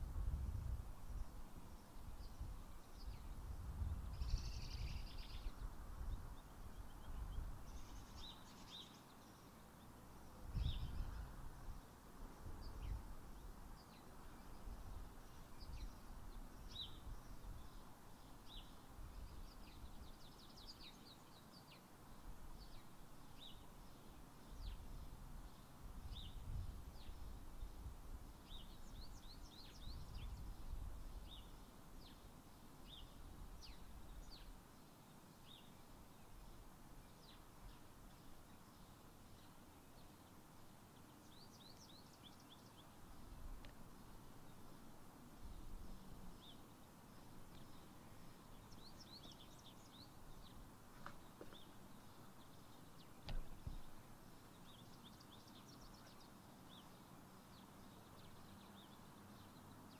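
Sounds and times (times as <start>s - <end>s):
wind rumbling on microphone: 0.0s - 8.3s, 10.4s - 13.6s, 24.5s - 32.2s, 53.2s - 54.0s
birds chirping: 4.1s - 27.7s, 28.4s - 59.9s.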